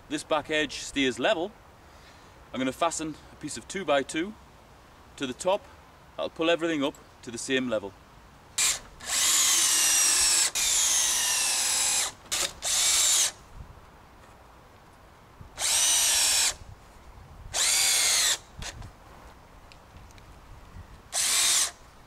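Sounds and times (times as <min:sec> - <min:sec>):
cordless drill motor whine: 0:08.6 - 0:13.4, 0:15.6 - 0:16.6, 0:17.5 - 0:18.8, 0:21.1 - 0:21.8.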